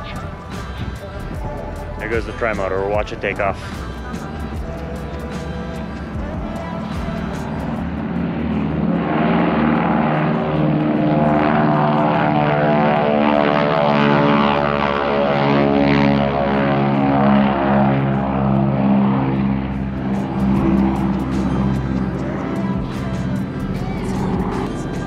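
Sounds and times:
propeller engine drone: 0:00.0 - 0:25.0.

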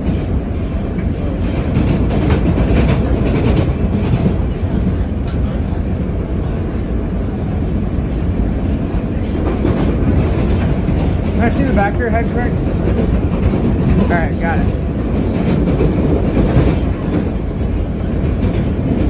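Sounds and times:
subway train rumble and rattle: 0:00.0 - 0:19.0.

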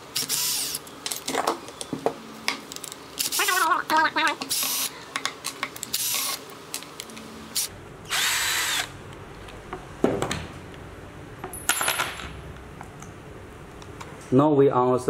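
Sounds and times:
cordless drill motor whine: 0:04.5 - 0:04.9, 0:07.5 - 0:09.0.

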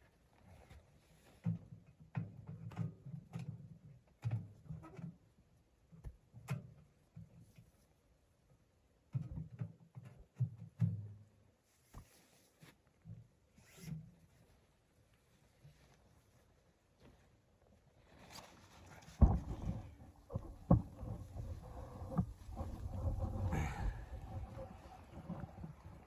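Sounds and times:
tent fabric rustling: 0:17.8 - 0:23.9.

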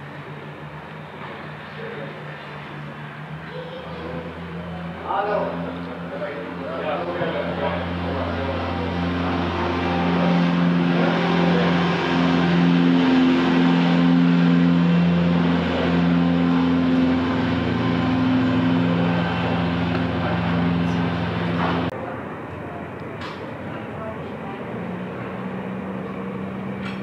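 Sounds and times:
light aircraft engine humming: 0:00.0 - 0:27.0.

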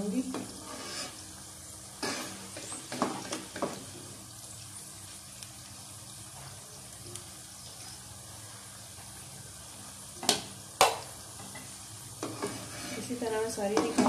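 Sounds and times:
food sizzling in oil: 0:00.0 - 0:14.0
metal spoon scraping pan: 0:00.4 - 0:01.2, 0:02.0 - 0:03.4, 0:12.2 - 0:14.0.

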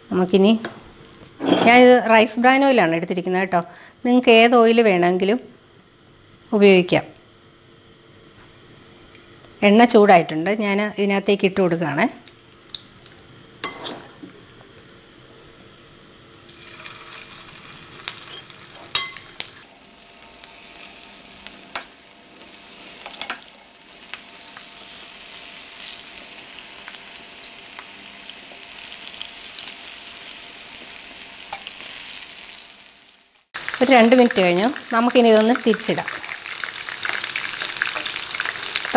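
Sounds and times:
chicken deep-frying in oil: 0:16.4 - 0:38.9.

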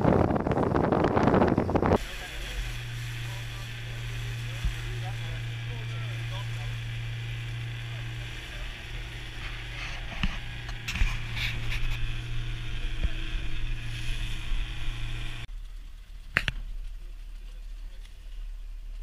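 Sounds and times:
outboard motor running: 0:00.0 - 0:19.0
wind: 0:00.0 - 0:19.0
water rushing: 0:01.9 - 0:15.5.

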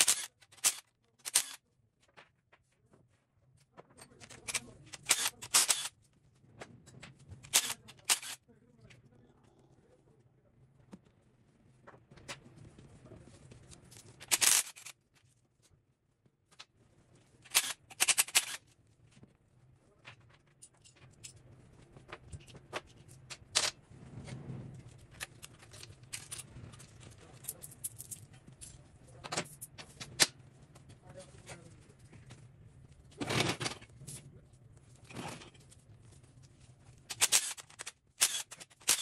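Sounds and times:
tools and metal parts clinking: 0:13.9 - 0:14.9, 0:20.2 - 0:23.7, 0:25.2 - 0:30.2, 0:37.1 - 0:39.0.

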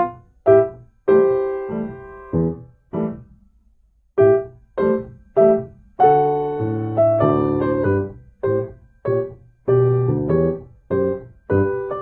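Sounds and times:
solo piano music: 0:00.0 - 0:03.4, 0:04.2 - 0:12.0.

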